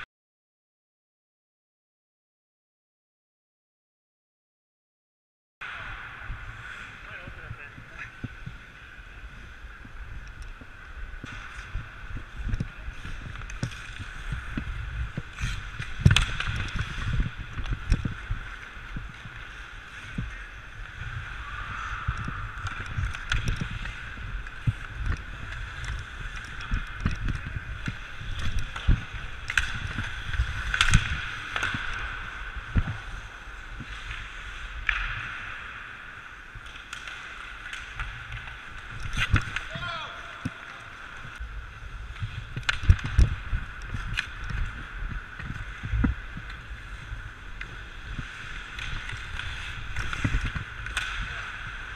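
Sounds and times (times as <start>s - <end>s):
wind rumble on microphone: 5.6s - 35.4s, 41.2s - 51.9s
hockey sticks clacking: 5.6s - 51.9s
skates scraping ice: 5.6s - 51.9s.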